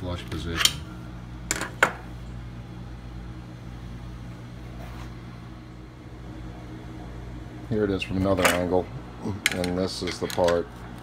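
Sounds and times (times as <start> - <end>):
low background hum: 0.0 - 11.0.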